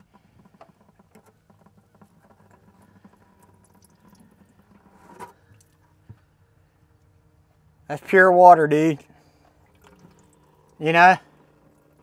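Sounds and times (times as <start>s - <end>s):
water draining into plastic bucket: 0.0s - 6.1s, 9.2s - 12.0s.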